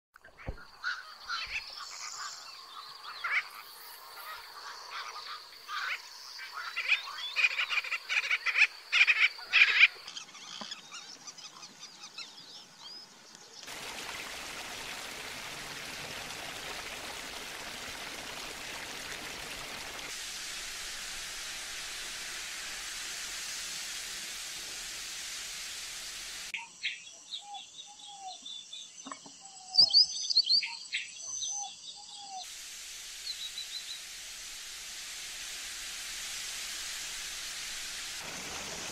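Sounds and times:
bird calls and chirps: 0.2 - 13.7, 26.6 - 32.5
steady hiss: 12.5 - 26.6, 32.4 - 38.9.

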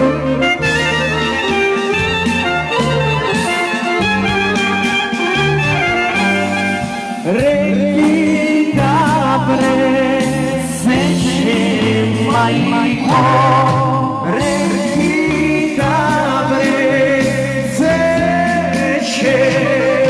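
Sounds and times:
folk band playing: 0.0 - 8.3, 9.1 - 20.0
man singing: 7.2 - 20.0.

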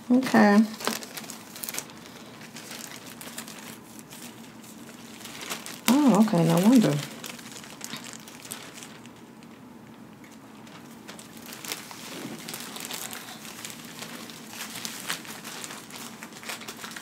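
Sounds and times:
plastic bib crinkling: 0.0 - 17.0.

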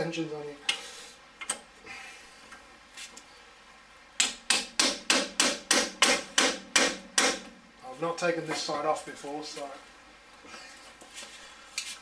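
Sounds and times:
impact wrench hammering: 4.2 - 7.6.

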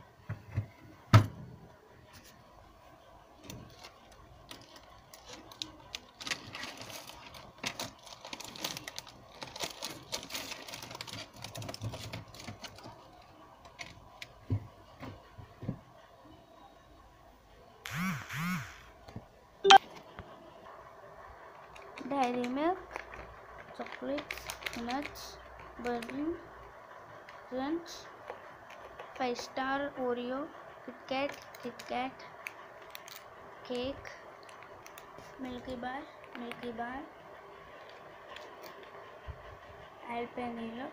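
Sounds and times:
wrappers crinkling: 3.6 - 13.9, 21.8 - 26.1.

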